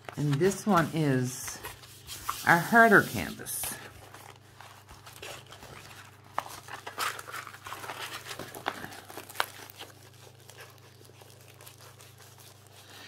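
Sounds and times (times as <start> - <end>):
stiff canvas crinkling and rustling: 3.8 - 13.0.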